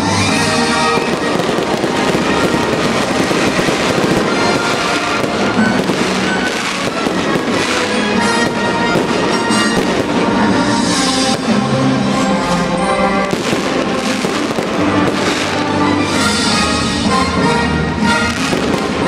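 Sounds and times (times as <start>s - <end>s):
fireworks bangs and crackles: 0.0s - 19.0s
music playing: 0.0s - 19.0s.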